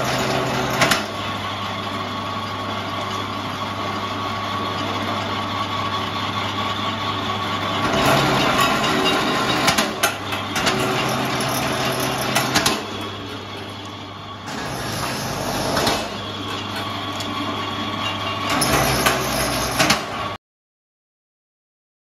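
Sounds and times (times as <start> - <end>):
sharp clicks of rollers: 0.0 - 1.2, 7.8 - 20.4.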